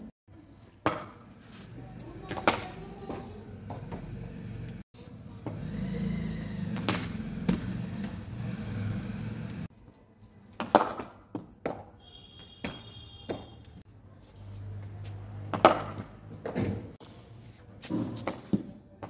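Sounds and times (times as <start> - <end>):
cricket bat hitting ball: 15.5 - 16.8.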